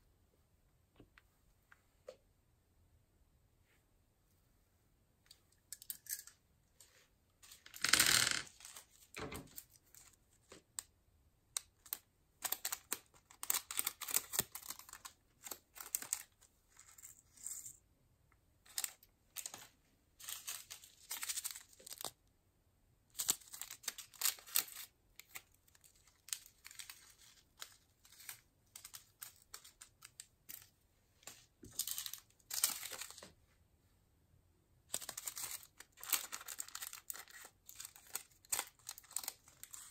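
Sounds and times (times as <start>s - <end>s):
glitter rustling and crinkling: 5.3s - 10.9s, 11.5s - 17.8s, 18.6s - 22.2s, 23.1s - 33.6s, 34.8s - 39.9s.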